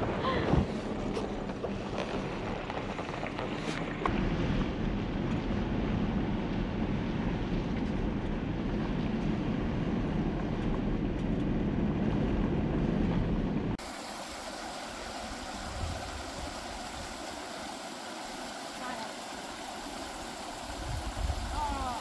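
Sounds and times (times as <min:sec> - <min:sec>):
truck rumbling on gravel: 0:00.0 - 0:11.9
stream rushing: 0:13.8 - 0:22.0.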